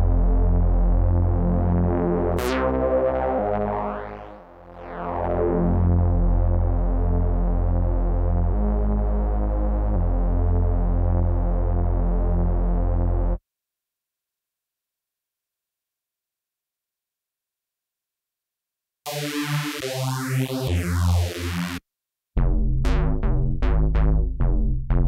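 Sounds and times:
synthesizer bass notes: 0.0s - 13.4s, 19.1s - 21.8s, 22.4s - 25.0s.

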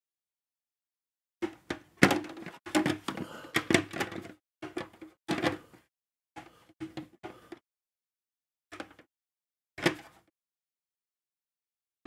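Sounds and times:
plastic parts clicking and scraping: 2.0s - 5.8s, 8.7s - 9.1s.

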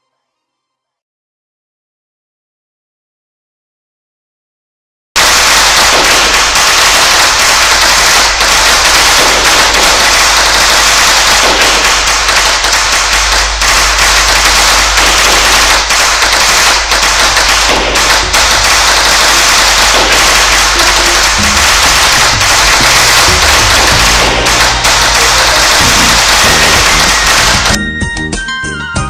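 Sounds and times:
firecrackers crackling: 5.2s - 27.8s.

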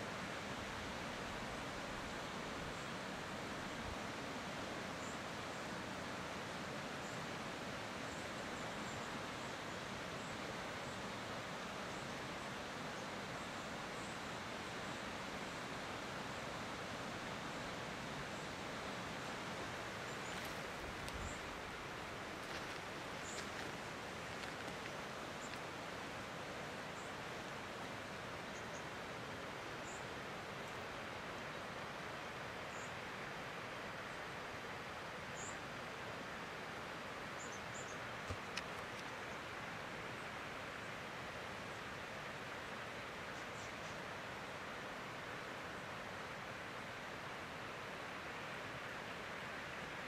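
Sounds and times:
bushland ambience hiss: 0.0s - 50.0s
small birds chirping: 20.0s - 21.6s, 22.4s - 25.7s
faint ticks: 24.4s - 25.7s.

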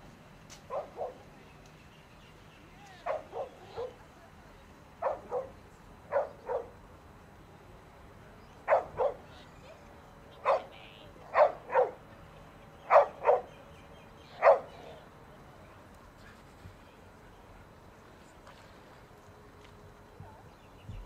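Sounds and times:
dog barking: 0.7s - 1.2s, 3.0s - 4.0s, 5.0s - 6.8s, 8.7s - 9.3s, 10.4s - 12.0s, 12.9s - 13.5s, 14.4s - 14.8s.

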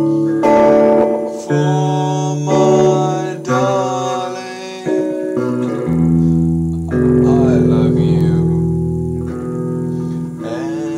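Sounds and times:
acoustic guitar chords: 0.0s - 10.9s
man singing softly: 0.5s - 6.4s, 7.2s - 8.7s, 10.2s - 10.9s.

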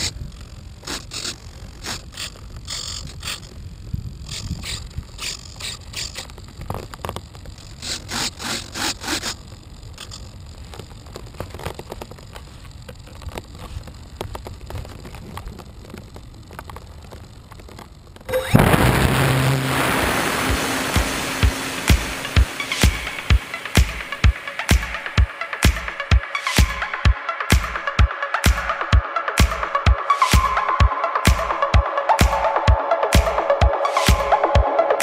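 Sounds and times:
electric motor starting loudly: 18.3s - 35.0s
propeller wash rushing: 18.4s - 35.0s.

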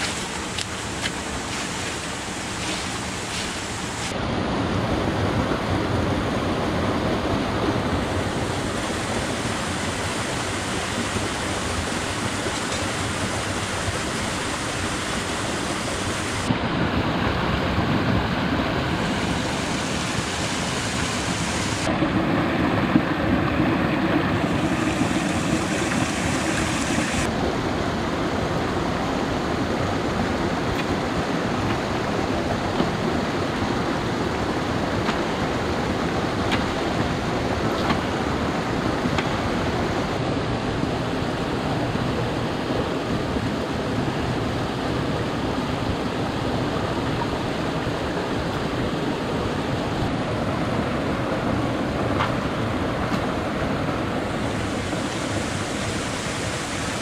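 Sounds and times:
stream splashing over rocks: 0.0s - 4.1s, 7.8s - 27.8s, 41.0s - 57.0s.

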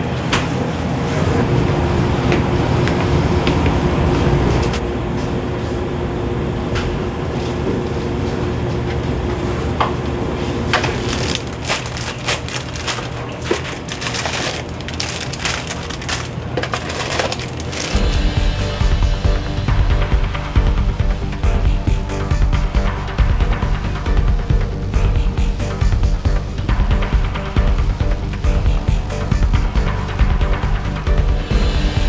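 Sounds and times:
ventilation and machinery hum: 0.0s - 32.0s
candy bags and box crinkling: 10.8s - 18.0s.

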